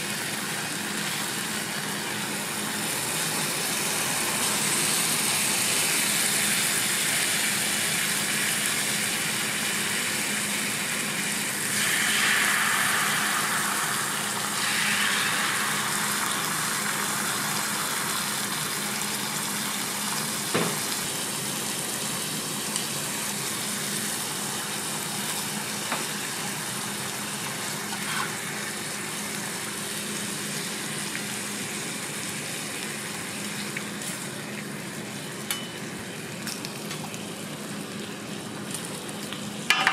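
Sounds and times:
bacon sizzling on a griddle: 0.0s - 39.9s
egg poured onto hot griddle: 11.4s - 19.0s
metal utensils tapping: 35.5s - 35.8s.

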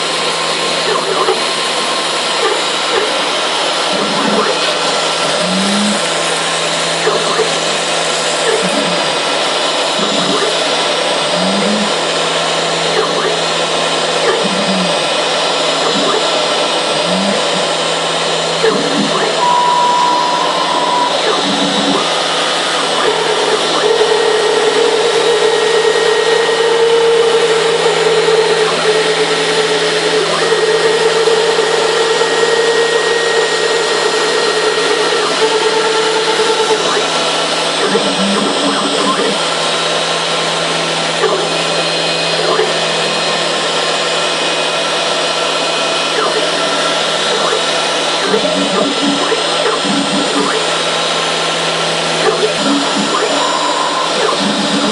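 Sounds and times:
drive motors whining: 0.0s - 54.9s
router spindle running: 0.0s - 54.9s.

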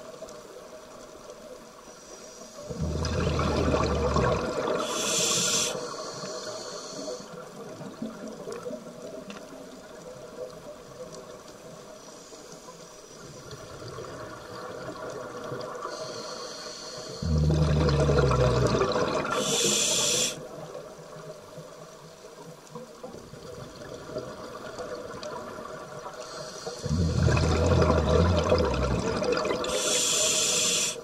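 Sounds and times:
underwater noise: 0.0s - 31.0s
regulator inhale hiss: 1.9s - 2.7s, 4.7s - 7.5s, 12.0s - 13.2s, 15.8s - 17.5s, 19.3s - 20.4s, 26.1s - 31.0s
exhaled bubbles underwater: 2.7s - 5.7s, 17.2s - 20.7s, 23.1s - 31.0s.

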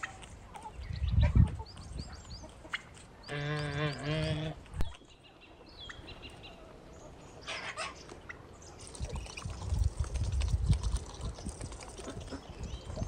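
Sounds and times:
beaks pecking grain on stone: 8.8s - 13.0s.

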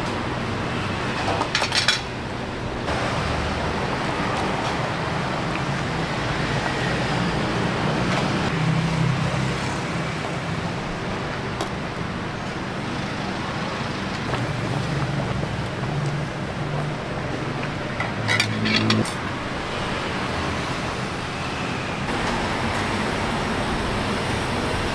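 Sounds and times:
road traffic passing: 0.0s - 24.9s
engine low hum: 10.8s - 19.0s.

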